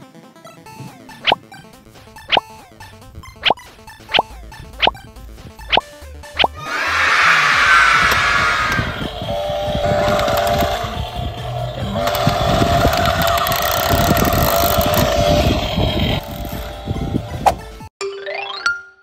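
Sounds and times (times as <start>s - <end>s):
toy chainsaw electronic buzz: 8.7s - 16.9s.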